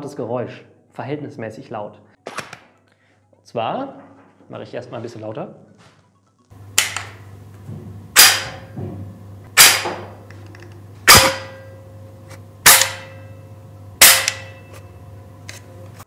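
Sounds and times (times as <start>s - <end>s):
steady low hum: 6.5s - 16.0s.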